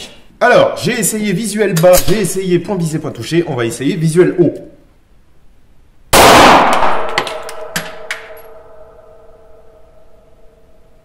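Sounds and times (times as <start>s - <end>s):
pistol shot echoing indoors: 6.1s - 10.2s
faint ringing: 8.3s - 11.0s.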